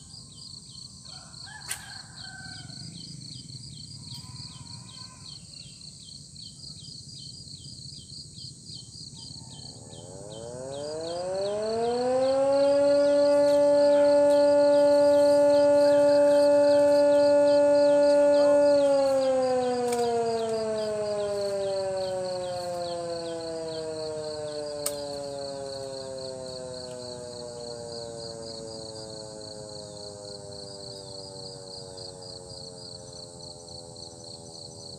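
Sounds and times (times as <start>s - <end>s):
siren wailing: 0.0s - 5.6s, 9.2s - 34.9s
insects chirping: 0.0s - 34.9s.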